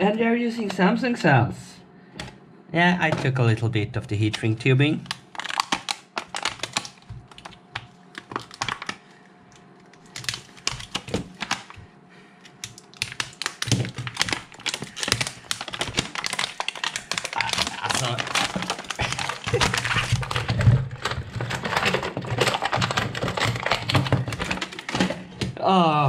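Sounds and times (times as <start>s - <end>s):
plastic wrap crinkling: 4.9s - 11.8s, 12.5s - 25.4s
hands handling battery pack: 12.4s - 25.2s.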